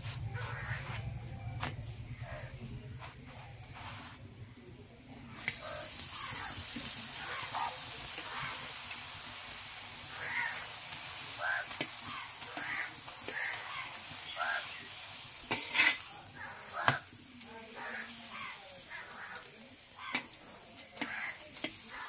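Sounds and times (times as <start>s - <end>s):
flatbread sizzling in oil: 5.3s - 22.0s.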